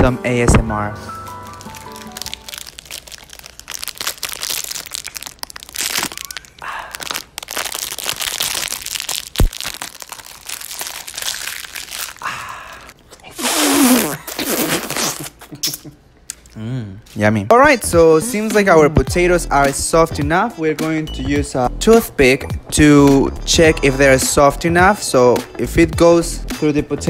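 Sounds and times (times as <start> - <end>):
plastic wrapper crinkling and tearing: 1.4 - 12.9
crunching bites into ice pop: 1.6 - 10.2.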